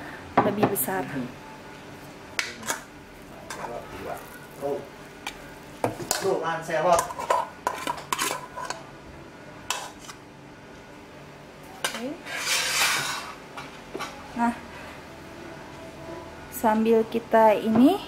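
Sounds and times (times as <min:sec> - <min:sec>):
utensil scraping metal pot: 0:06.1 - 0:08.8, 0:09.7 - 0:10.2, 0:12.2 - 0:13.4.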